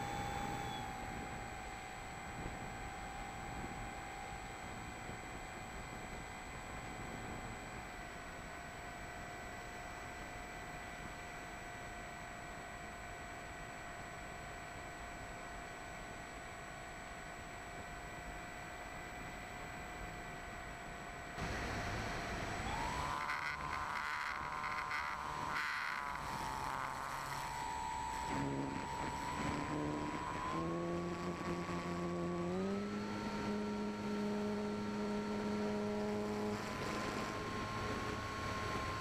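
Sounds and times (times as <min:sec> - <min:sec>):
electric motor and propeller whining: 0:00.0 - 0:07.5, 0:21.4 - 0:39.0.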